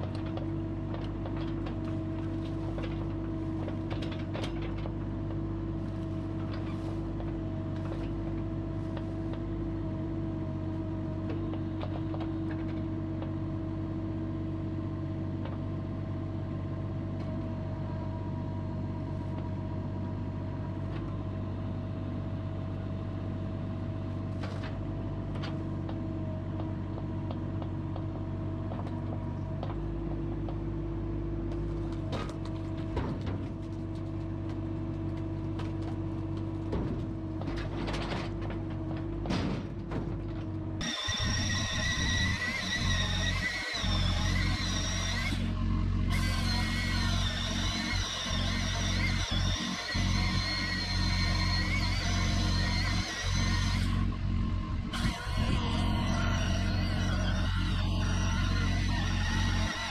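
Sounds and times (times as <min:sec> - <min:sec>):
diesel engine running: 0:00.0 - 0:59.9
metallic clanks and knocks: 0:36.5 - 0:40.5.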